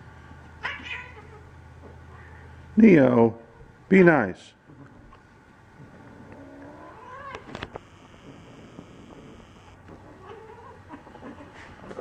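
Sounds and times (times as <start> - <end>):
cat yowling: 0.6 - 1.4, 6.5 - 7.5.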